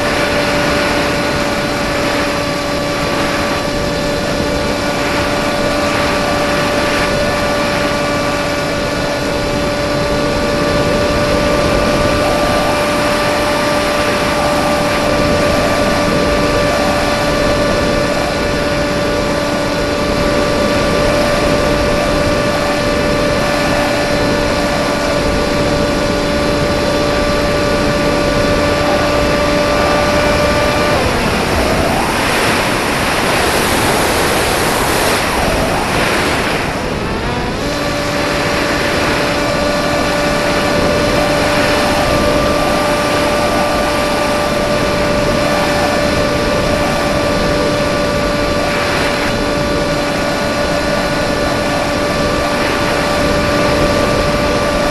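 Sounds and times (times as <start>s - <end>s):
airflow rushing on microphone: 0.0s - 54.9s
model plane motor whine: 0.0s - 54.9s.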